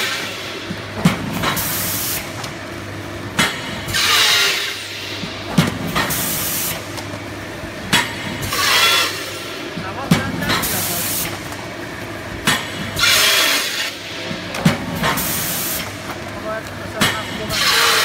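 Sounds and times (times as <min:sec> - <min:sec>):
machine humming: 0:00.0 - 0:18.0
machine knocking: 0:07.0 - 0:11.6, 0:12.3 - 0:15.3, 0:15.9 - 0:18.0.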